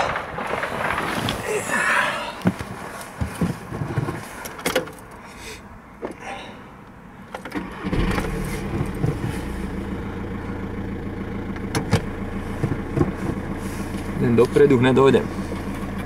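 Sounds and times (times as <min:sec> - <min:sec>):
car engine starting and idling: 0:06.8 - 0:16.0.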